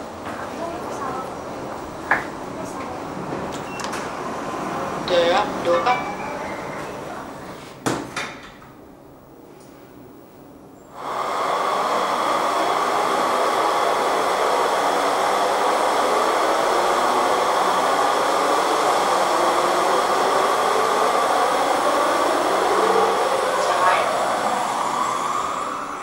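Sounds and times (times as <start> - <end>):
loud steady rushing noise: 11.0 - 26.0.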